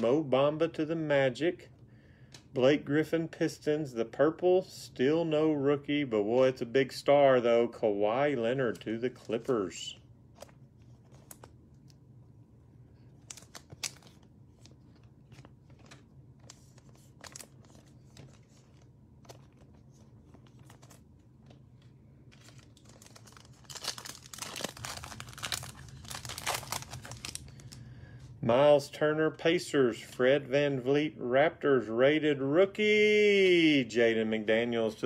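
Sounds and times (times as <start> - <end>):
foil wrapper tearing: 22.3 - 27.8.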